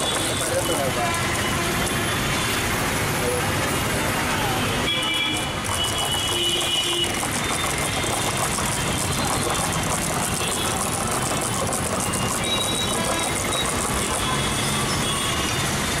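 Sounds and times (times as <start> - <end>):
wooden stick whisking yogurt: 0.0 - 1.4, 5.1 - 15.0
street traffic: 0.0 - 16.0.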